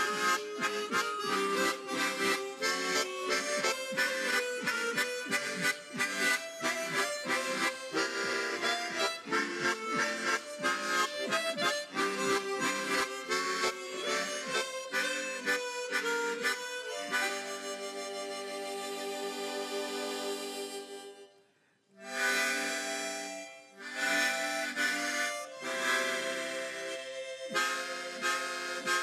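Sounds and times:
harmonica ensemble playing: 0.0 - 21.4, 22.0 - 29.0.

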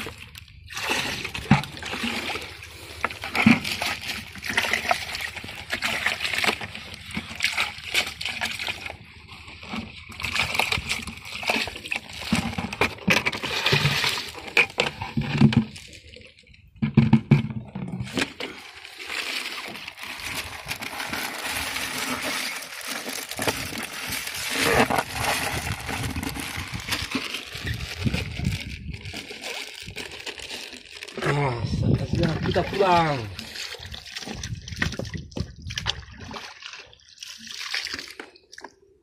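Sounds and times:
water sloshing in plastic bucket: 0.0 - 39.0
plastic bag crinkling: 18.1 - 31.5.

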